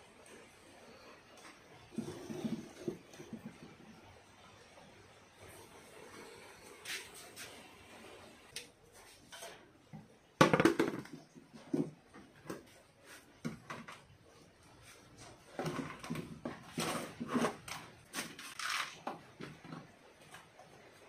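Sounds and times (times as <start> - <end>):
plastic pot knocking on wooden table: 10.4 - 11.2.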